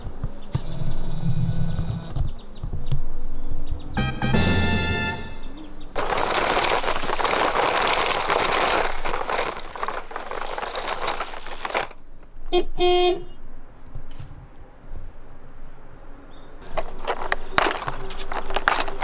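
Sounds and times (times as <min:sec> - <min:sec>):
toy horn honking: 0:04.0 - 0:05.5
dry leaves crunching under wheels: 0:06.0 - 0:12.2, 0:16.6 - 0:19.0.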